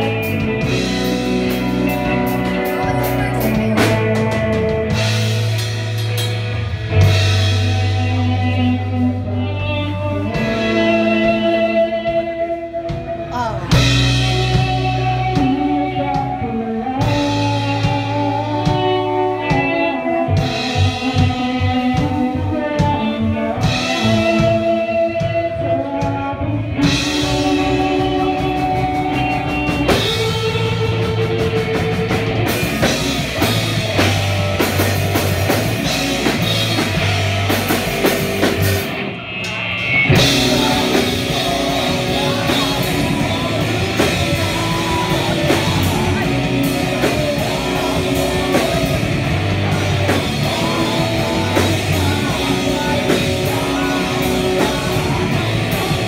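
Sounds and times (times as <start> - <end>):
drum kit: 0.0 - 56.0
electric guitars: 0.0 - 56.0
woman singing into a microphone: 13.3 - 13.9.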